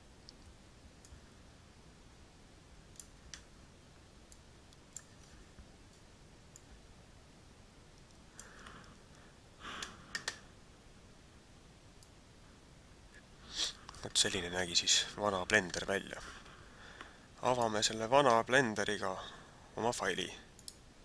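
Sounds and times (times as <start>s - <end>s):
computer mouse clicks: 2.9s - 3.5s, 4.3s - 6.7s, 9.8s - 10.4s, 20.6s - 20.8s.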